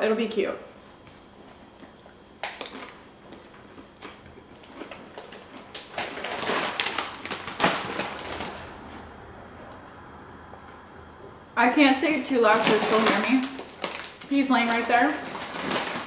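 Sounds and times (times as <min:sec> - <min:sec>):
chip crunching: 0:01.8 - 0:08.9, 0:12.5 - 0:16.0
plastic chip bag crinkling: 0:02.4 - 0:09.0, 0:12.2 - 0:16.0.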